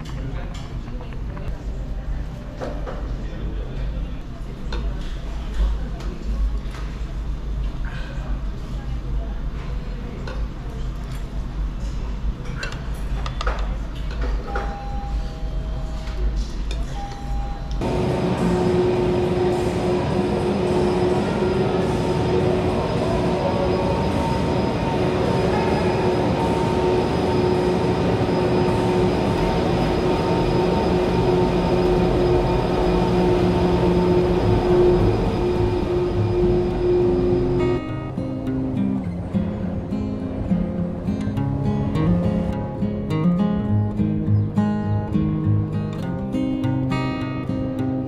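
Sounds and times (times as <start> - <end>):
constant humming tone: 13.9 - 44.4
cable car mechanical rumble: 17.1 - 42.6.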